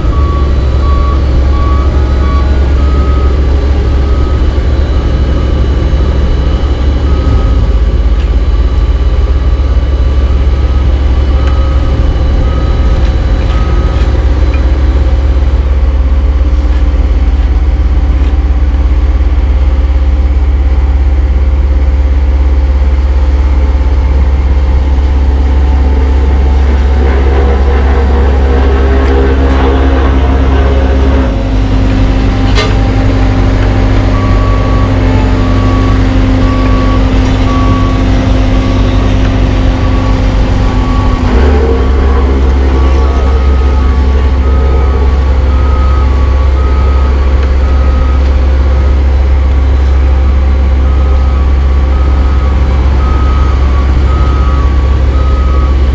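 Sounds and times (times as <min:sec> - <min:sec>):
diesel engine droning: 0:00.0 - 0:55.9
reversing alarm beeping: 0:00.0 - 0:55.9
second machine engine: 0:00.0 - 0:55.9.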